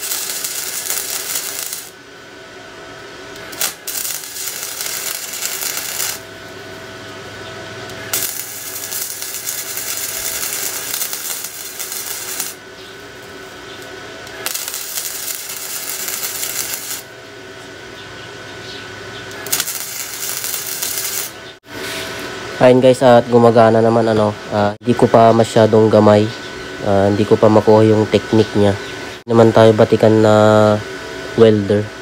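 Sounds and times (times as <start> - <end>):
welding arc crackling: 0.0 - 2.0, 3.3 - 17.1, 19.3 - 21.4.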